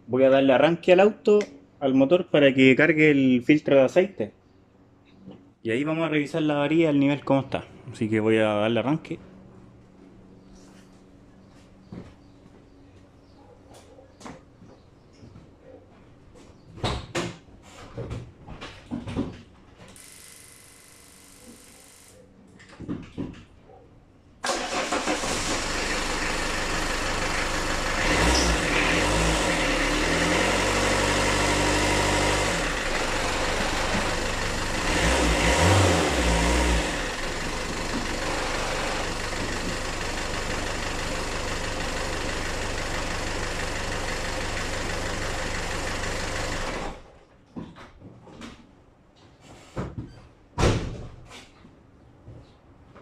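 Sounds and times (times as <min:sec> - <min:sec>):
diesel engine starting and running: 0:24.4 - 0:47.1.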